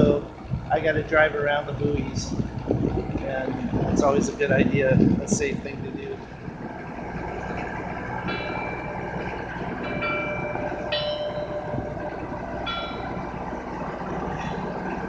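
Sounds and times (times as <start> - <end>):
boat engine running: 0.0 - 15.0
buoy bell clanging: 8.3 - 13.5.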